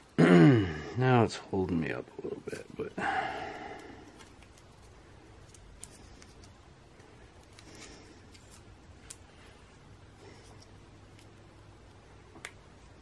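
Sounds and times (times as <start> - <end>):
soft rustling of hands: 3.7 - 13.0.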